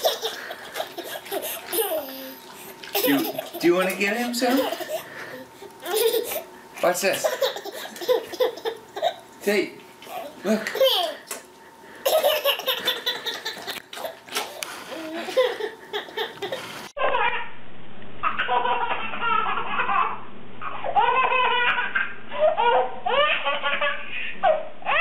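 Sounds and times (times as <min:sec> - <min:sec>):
toddler belly laughing: 0:00.0 - 0:03.7, 0:04.4 - 0:05.1, 0:05.8 - 0:06.5, 0:07.2 - 0:09.2, 0:12.0 - 0:17.4, 0:18.2 - 0:25.0
baby squealing laughs: 0:15.2 - 0:17.5, 0:18.2 - 0:25.0.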